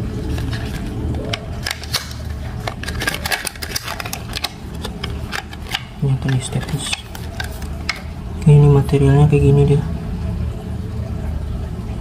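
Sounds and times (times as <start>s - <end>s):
plastic blister pack crackling: 0.0s - 8.2s.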